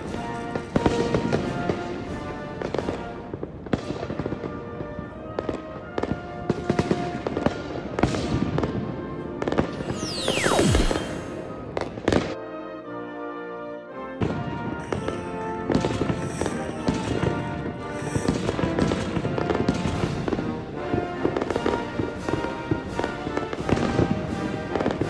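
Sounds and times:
background music: 0.0 - 25.0
fireworks bursting: 9.7 - 12.2
falling pitch glide: 9.8 - 11.6.

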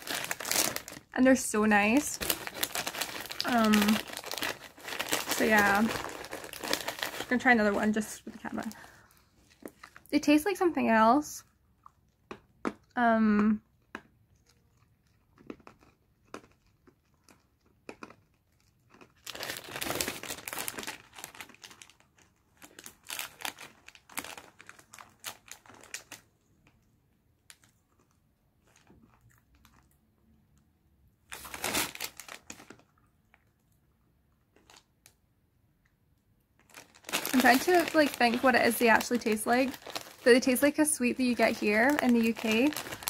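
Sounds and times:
plastic wrapper crinkling: 0.0 - 10.6, 14.4 - 30.0, 31.2 - 33.8, 34.4 - 35.2, 36.6 - 43.0.

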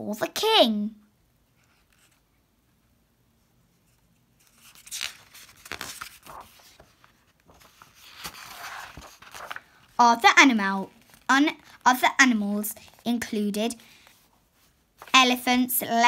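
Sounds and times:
book pages turning: 1.6 - 2.3, 3.8 - 10.0, 10.8 - 11.8, 12.7 - 15.4.

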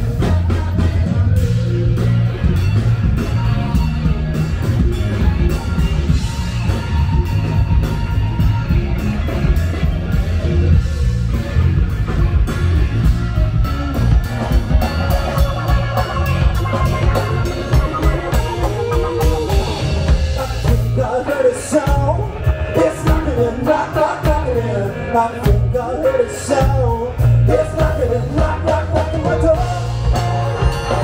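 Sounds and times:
bass guitar: 0.0 - 31.0
drums: 0.0 - 31.0
electric guitar: 0.0 - 31.0
person singing: 14.8 - 31.0.

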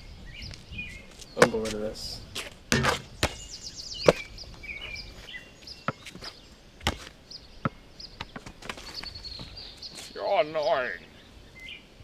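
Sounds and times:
birds chirping: 0.0 - 12.0
basketball bouncing on concrete: 2.7 - 3.4.

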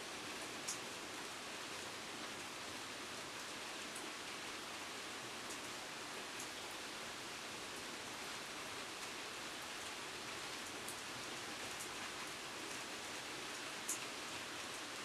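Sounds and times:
steady rain falling: 0.0 - 15.0
rain drop ticks: 0.6 - 0.8, 13.8 - 14.0.

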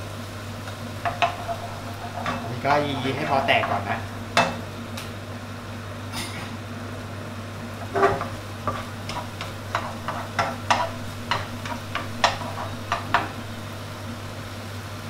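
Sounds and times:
steady low hum: 0.0 - 14.9
wooden spatula tapping a wok: 1.0 - 2.5, 8.1 - 13.4.

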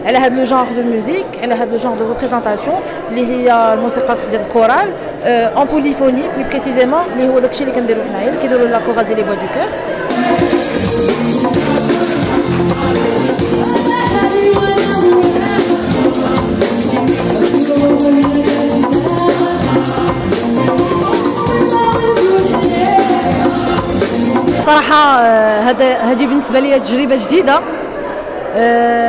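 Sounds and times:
choir singing: 10.0 - 24.6
rattling percussion beat: 10.1 - 24.8
woman singing: 11.8 - 23.9.

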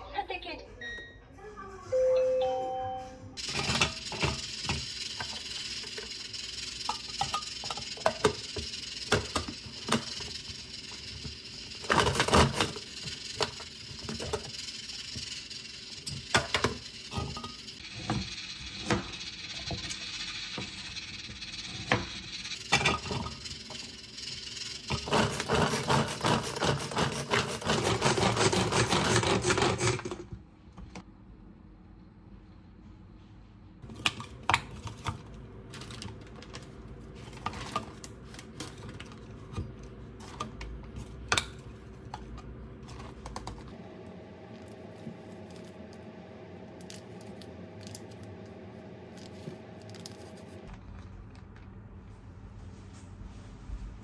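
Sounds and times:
mini chopper clicks and knocks: 3.4 - 25.6.

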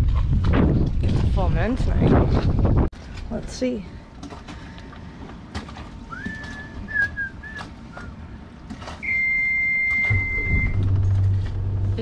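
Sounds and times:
diesel engine humming: 6.1 - 12.0
wavering whistle-like note: 9.0 - 10.9.

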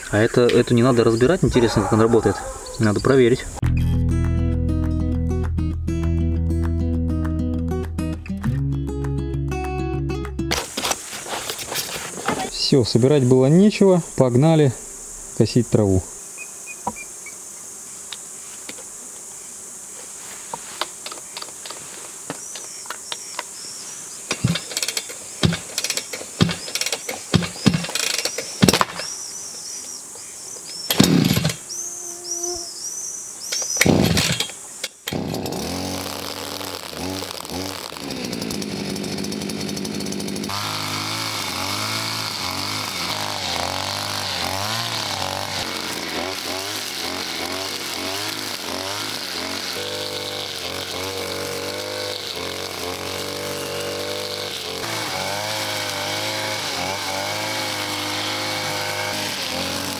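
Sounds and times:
brush cutter engine running: 24.3 - 29.0, 30.9 - 31.6, 33.8 - 59.9.

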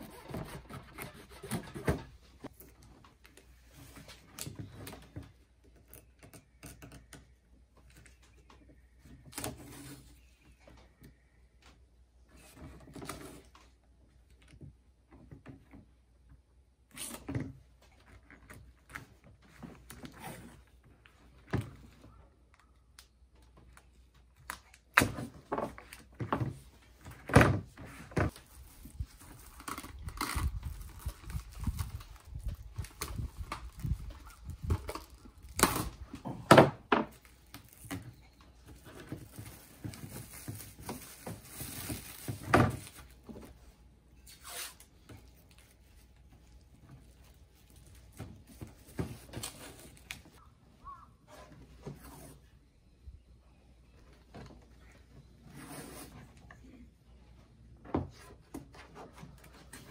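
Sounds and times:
plastic rustling: 37.1 - 43.7.

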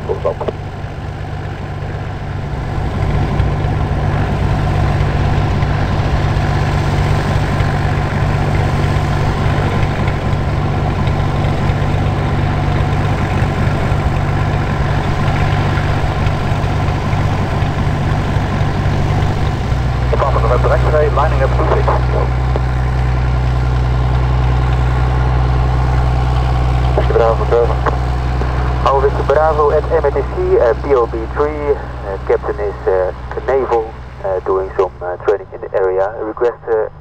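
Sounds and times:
aircraft engine and propeller: 0.0 - 37.0.

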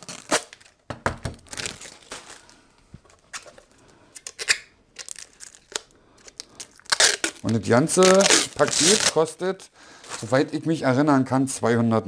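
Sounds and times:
plastic film crackling and tearing: 0.0 - 2.6, 4.1 - 9.4.

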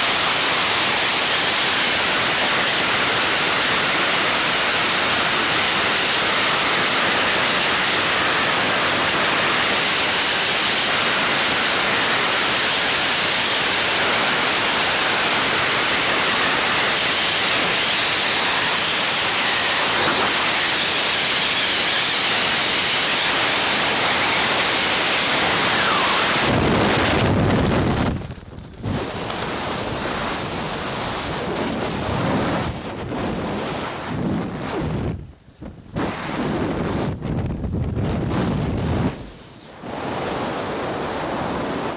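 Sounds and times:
loud roar of freefall wind: 0.0 - 41.9
gusty wind buffeting microphone: 23.3 - 41.9.

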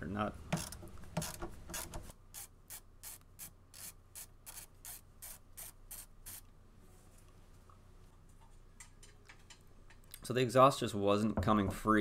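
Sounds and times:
hand ratchet clicking: 0.5 - 6.4.

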